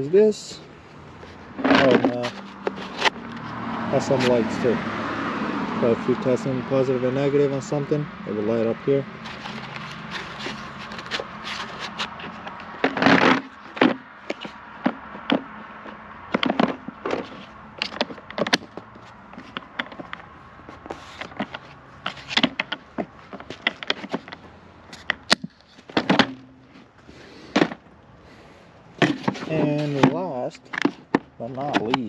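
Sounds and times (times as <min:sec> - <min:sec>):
tools and plastic case clattering: 0:01.5 - 0:04.4, 0:09.2 - 0:27.9, 0:29.0 - 0:32.0.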